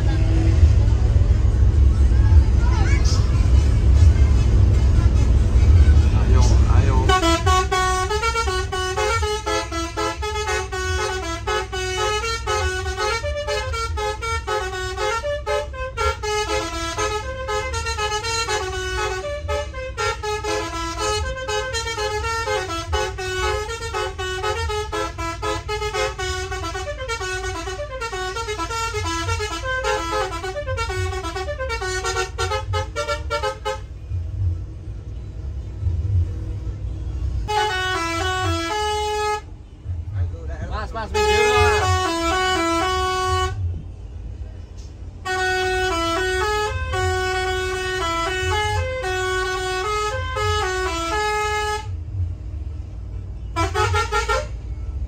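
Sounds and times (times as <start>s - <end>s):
bus horn playing a tune: 0.0s - 34.2s, 36.9s - 40.2s, 40.8s - 43.8s, 44.8s - 52.3s, 53.4s - 55.0s
bus engine running: 0.0s - 55.0s.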